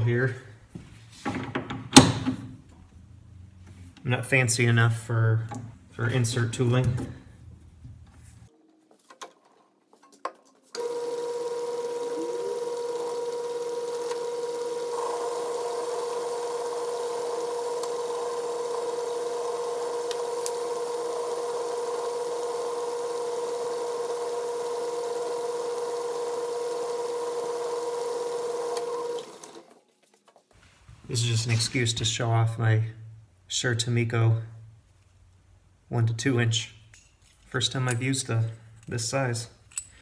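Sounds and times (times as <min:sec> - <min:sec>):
metal lathe running with whine: 0:10.8 - 0:29.5.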